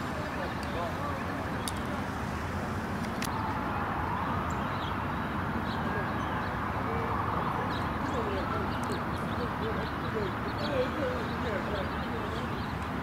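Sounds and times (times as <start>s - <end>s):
outdoor background noise: 0.0s - 13.0s
distant siren wailing: 3.3s - 12.4s.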